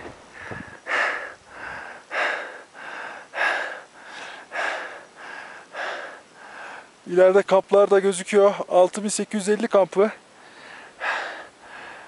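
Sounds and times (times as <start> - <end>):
person breathing heavily: 0.3 - 7.0, 10.4 - 12.0.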